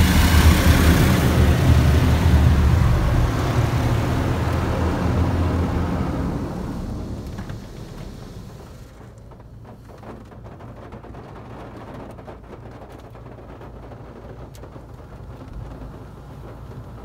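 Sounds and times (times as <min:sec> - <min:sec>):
car wash machine humming: 0:00.0 - 0:09.9
water spattering on car: 0:00.0 - 0:17.0.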